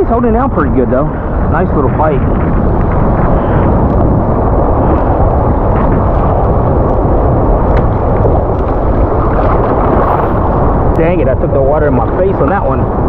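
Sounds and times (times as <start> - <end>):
waves splashing: 0.0 - 13.0.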